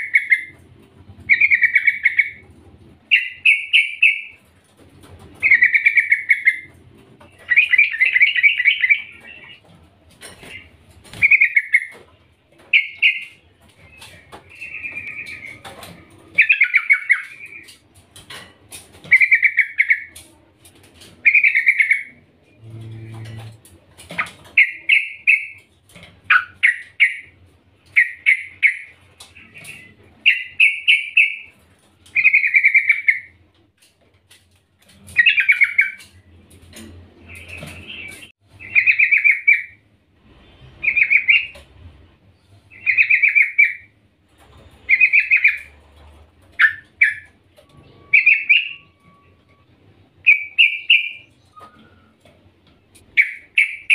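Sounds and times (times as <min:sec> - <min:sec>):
bird chattering calls: 0:01.3 - 0:02.4, 0:05.4 - 0:06.7, 0:53.2 - 0:53.9.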